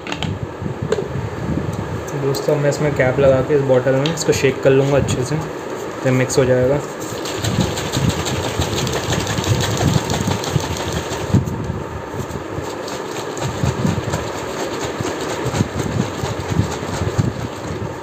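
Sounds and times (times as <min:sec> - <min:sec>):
liquid sloshing in shaken bottle: 0:07.0 - 0:11.4, 0:12.6 - 0:18.0.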